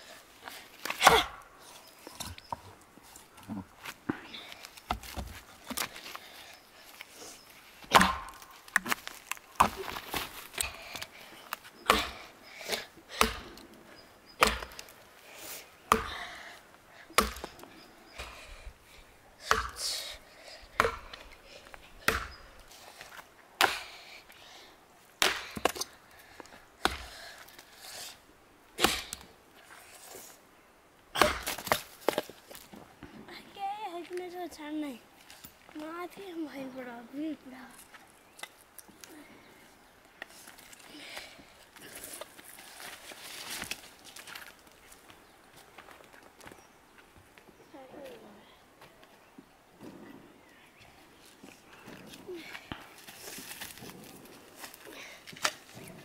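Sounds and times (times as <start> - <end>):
axe chopping wood: 0.8 - 1.4, 7.8 - 11.0, 11.8 - 13.6, 14.4 - 14.9, 15.9 - 16.2, 17.2 - 17.6, 19.4 - 20.0, 20.8 - 21.3, 22.0 - 22.4, 23.6 - 24.0, 25.2 - 25.9, 26.8 - 27.2, 28.8 - 29.3, 31.2 - 32.3.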